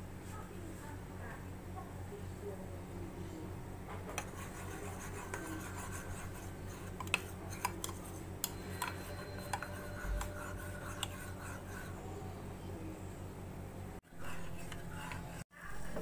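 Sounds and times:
metal spoon scraping a mug: 0:04.2 - 0:12.0, 0:14.1 - 0:16.0.

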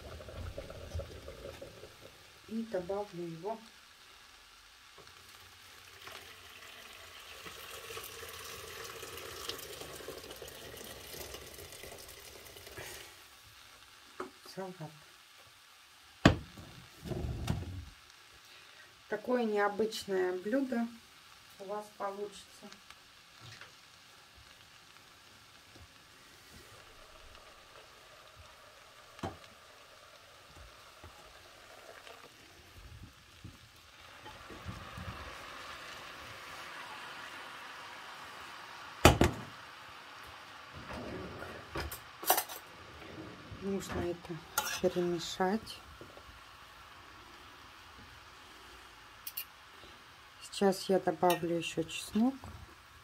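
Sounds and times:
water running and splashing: 0:00.0 - 0:13.8, 0:23.2 - 0:49.4
faint hiss: 0:00.0 - 0:53.0.

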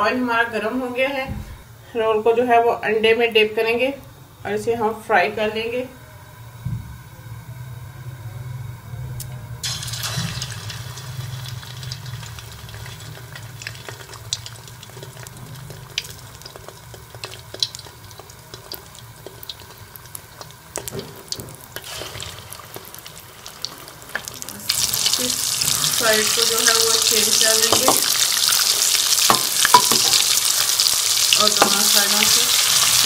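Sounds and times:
potato rolls sizzling in hot oil: 0:09.6 - 0:33.0.

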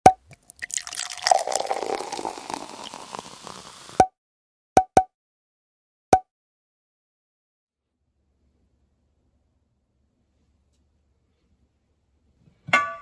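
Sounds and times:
crackling pouring rush: 0:00.6 - 0:04.0.

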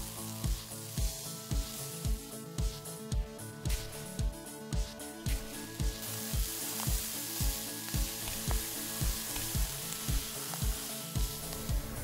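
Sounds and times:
background music with beat: 0:00.0 - 0:12.0
sand trickling into glass: 0:05.5 - 0:12.0.

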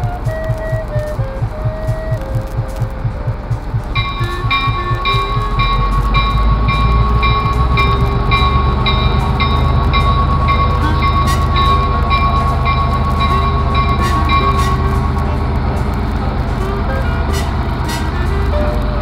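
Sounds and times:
constant high tone: 0:00.0 - 0:19.0
diesel locomotive engine rumbling: 0:00.0 - 0:19.0
bell ringing: 0:04.0 - 0:18.4.

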